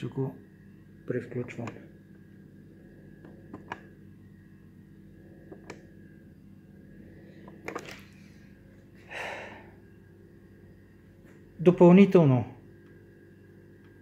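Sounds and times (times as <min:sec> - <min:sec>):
steady low hum: 0:00.0 - 0:14.0
tape recorder control clicks: 0:01.5 - 0:01.9, 0:03.2 - 0:03.9, 0:05.5 - 0:05.9.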